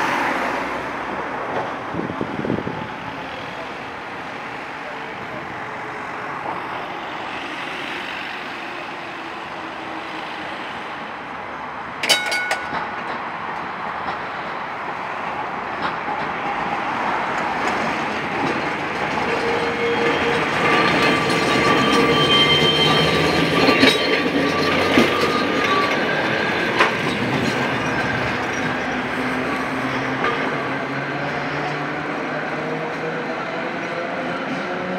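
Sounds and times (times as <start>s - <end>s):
tram running along rails: 0.0s - 34.9s
clanks over the track: 12.0s - 14.5s, 15.7s - 34.9s
wheel squeal: 19.1s - 29.0s.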